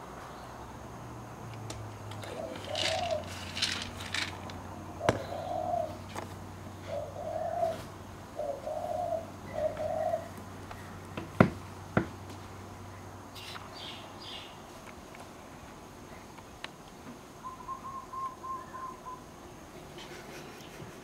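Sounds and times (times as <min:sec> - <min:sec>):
dove cooing: 0:02.2 - 0:04.3, 0:04.9 - 0:06.1, 0:06.8 - 0:10.9, 0:17.4 - 0:19.3.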